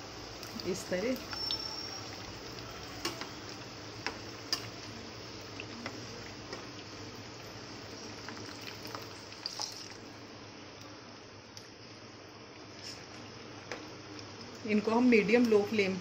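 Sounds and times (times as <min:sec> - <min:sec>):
deep-frying oil sizzling: 0:00.0 - 0:10.5.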